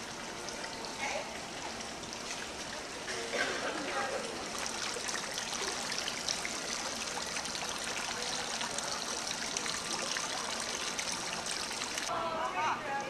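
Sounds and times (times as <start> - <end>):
fountain water splashing into basin: 0.0 - 12.1.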